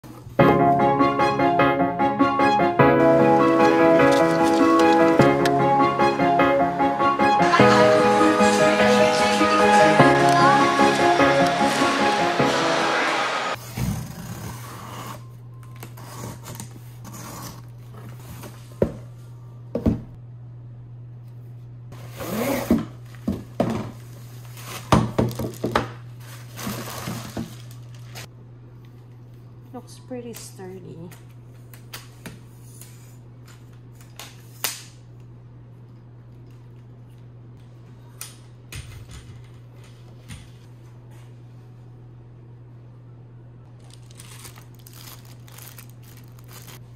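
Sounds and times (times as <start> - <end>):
cardboard scraping and rustling: 4.0 - 5.2.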